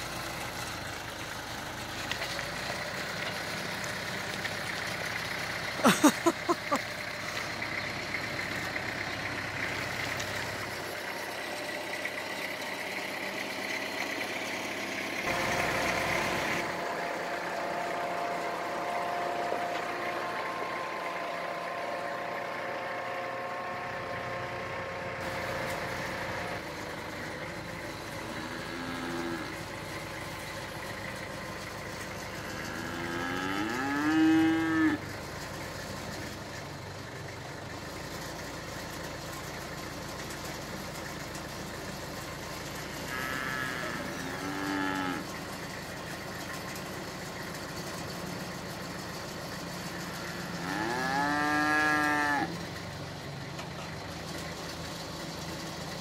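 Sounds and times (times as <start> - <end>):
tractor engine running: 0.0 - 56.0
cow mooing: 28.2 - 29.6, 32.4 - 35.0, 43.0 - 45.3, 50.3 - 52.6.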